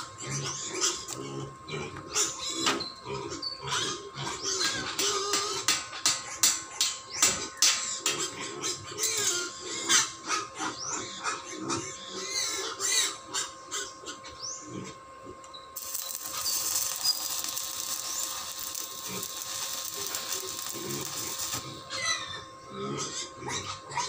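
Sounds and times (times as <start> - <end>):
pigs squealing: 0.2 - 5.7, 8.1 - 15.0, 15.8 - 24.0
arc welder crackling: 15.8 - 22.4.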